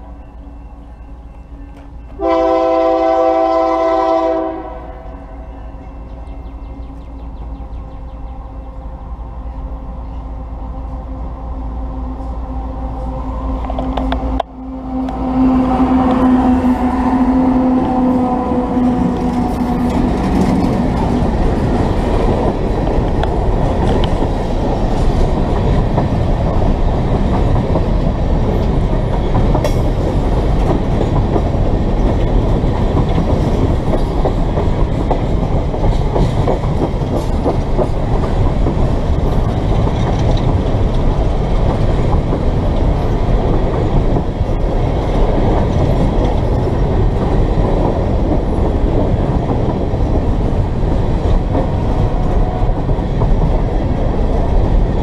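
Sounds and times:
diesel locomotive droning: 0.0 - 55.0
train wheels clacking over rail joints: 18.7 - 55.0.

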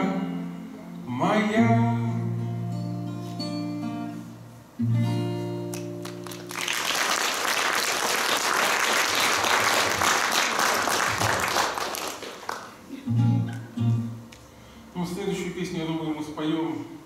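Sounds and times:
acoustic guitar chord ringing: 0.0 - 6.2, 12.9 - 14.3
audience applause: 6.0 - 12.8.

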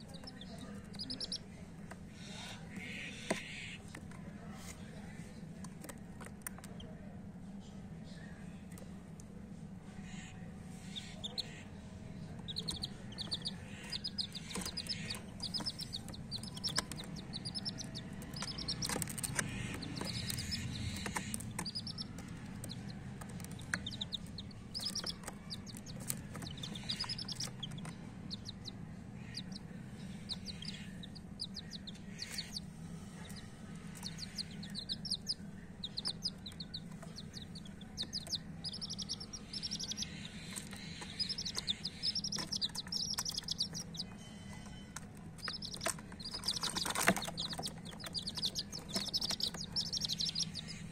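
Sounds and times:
chicks peeping: 0.0 - 7.1, 9.9 - 50.9
steady low hum: 0.0 - 50.9.

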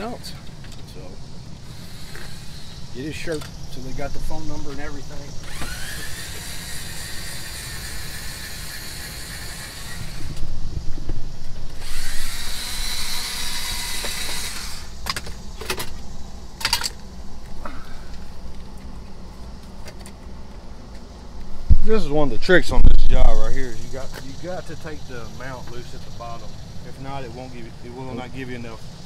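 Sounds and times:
power driver whining: 0.0 - 17.0.

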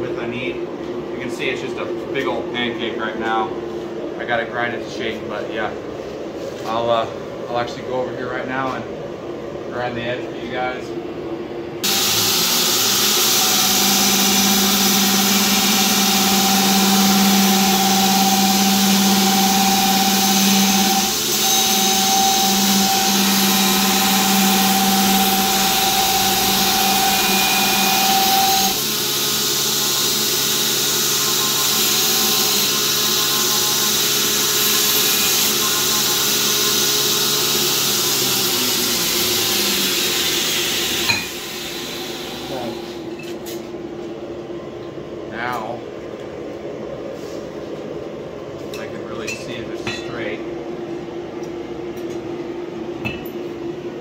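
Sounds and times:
belt grinder whining: 11.8 - 42.8.

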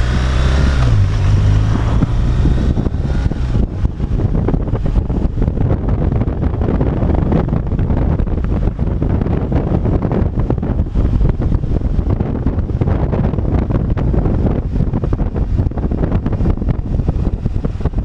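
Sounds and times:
motorcycle engine hum: 0.0 - 18.0
wind buffeting microphone: 0.0 - 18.0.

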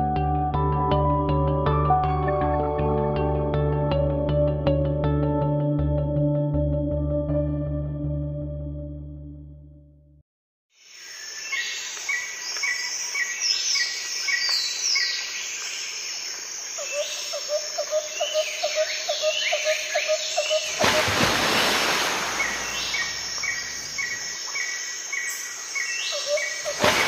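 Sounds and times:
birds chirping and singing: 22.3 - 26.9.

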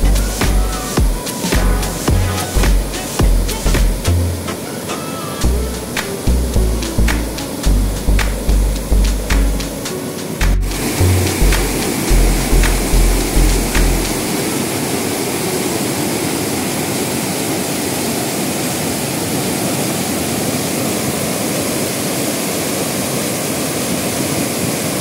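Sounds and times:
background music: 0.0 - 14.3
river water rushing over weir: 0.0 - 25.0.

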